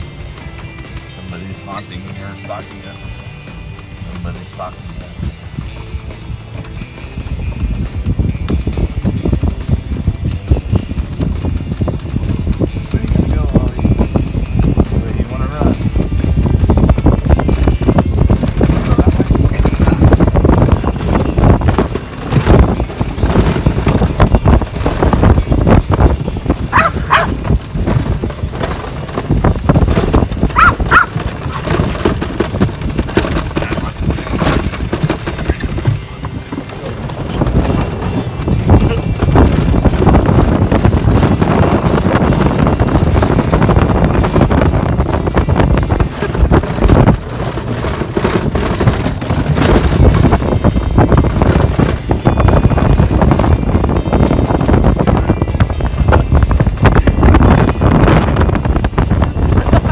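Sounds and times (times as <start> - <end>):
golf cart running and rattling: 0.0 - 59.9
loud uneven low rumble: 0.0 - 59.9
wind buffeting microphone: 0.0 - 59.9
dog barking: 26.7 - 27.4, 30.5 - 31.6.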